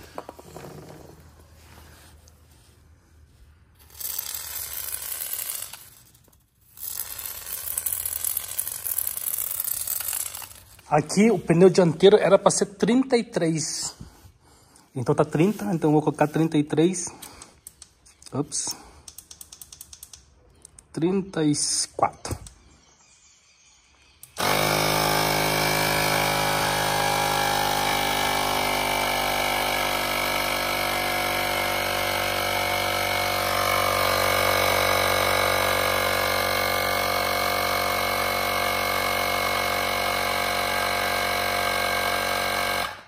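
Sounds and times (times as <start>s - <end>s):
small air compressor running: 3.8s - 10.9s, 24.3s - 43.0s.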